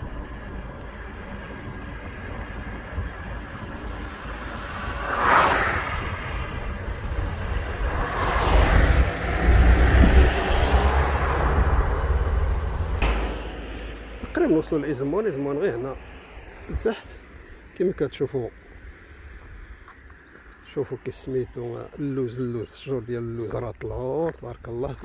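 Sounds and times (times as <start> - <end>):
car road noise inside cabin: 0.0 - 17.0
oncoming car passing: 0.0 - 18.6.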